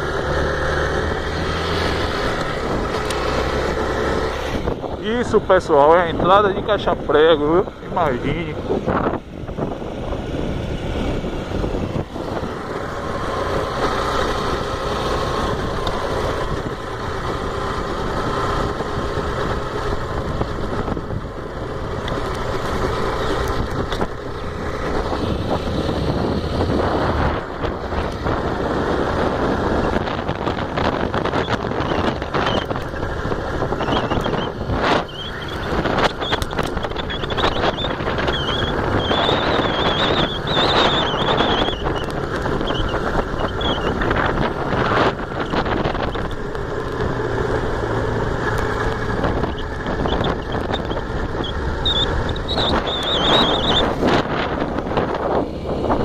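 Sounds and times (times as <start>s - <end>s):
motorcycle engine drone: 0.0s - 56.0s
wind rumble on microphone: 0.0s - 56.0s.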